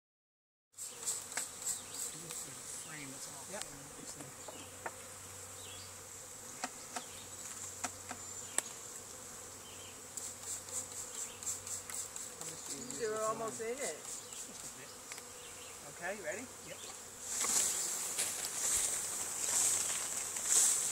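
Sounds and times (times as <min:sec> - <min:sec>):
bees buzzing: 0:00.8 - 0:20.9
spray bottle hissing: 0:10.2 - 0:12.4.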